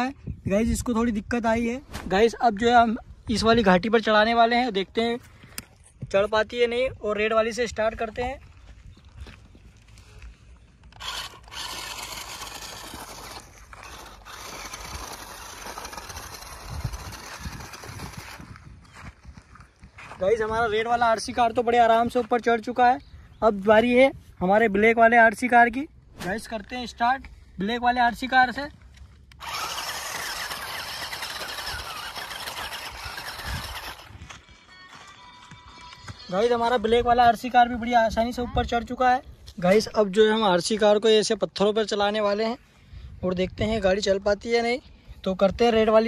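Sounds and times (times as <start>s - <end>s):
toy car electric motors whirring: 10.8s - 18.9s, 29.2s - 34.5s.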